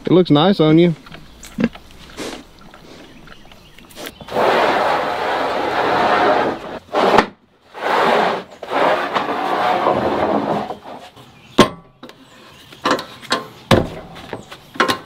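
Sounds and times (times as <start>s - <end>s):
wooden boards scraping: 3.9s - 11.3s.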